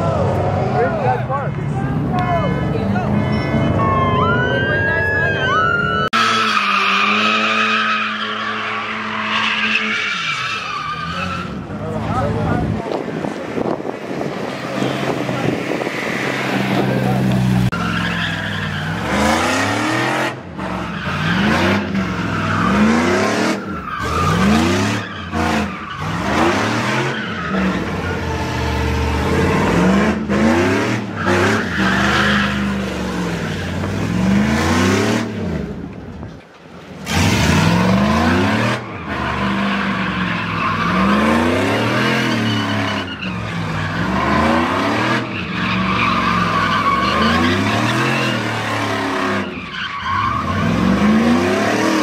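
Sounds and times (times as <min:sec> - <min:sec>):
car engines revving: 0:00.0 - 0:52.0
tyres squealing and skidding: 0:00.0 - 0:52.0.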